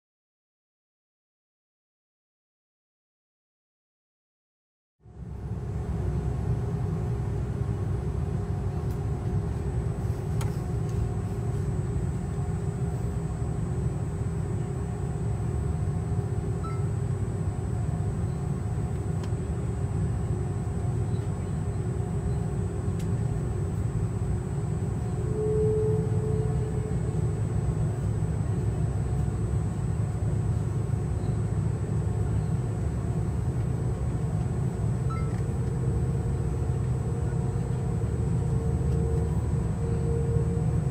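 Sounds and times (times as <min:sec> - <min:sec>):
airliner engines rumbling: 0:05.0 - 0:40.9
faint steady hum: 0:05.0 - 0:40.9
short higher tone: 0:16.5 - 0:17.0, 0:25.1 - 0:27.5.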